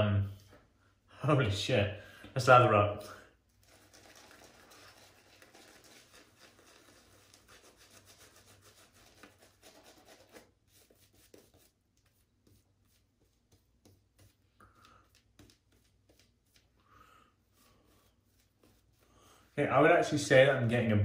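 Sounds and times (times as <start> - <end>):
shaving brush strokes on skin: 3.6 - 19.6.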